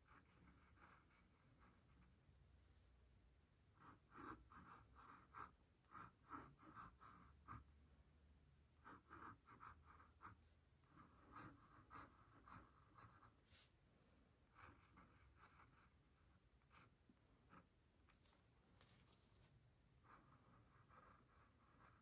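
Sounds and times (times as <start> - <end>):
pen nib scratching on paper: 0.0 - 2.1, 3.8 - 7.8, 8.8 - 13.7, 14.5 - 18.4, 20.0 - 22.0.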